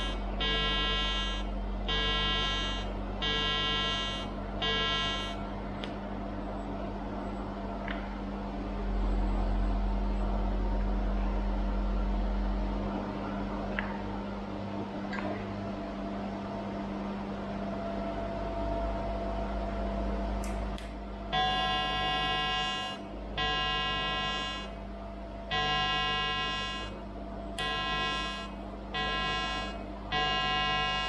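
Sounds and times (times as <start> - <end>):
welding arc buzzing whine: 0.0 - 5.9, 16.9 - 31.0
welding machine humming: 0.0 - 5.9, 20.4 - 31.0.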